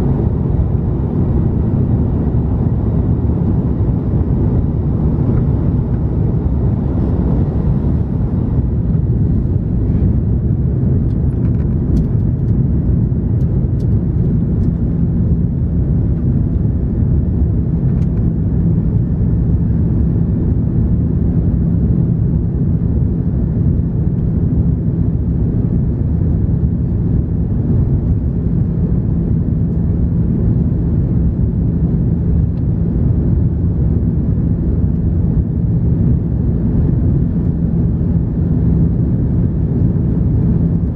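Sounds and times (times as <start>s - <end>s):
rushing airflow: 0.0s - 11.4s
airplane cabin engine drone: 0.0s - 40.9s.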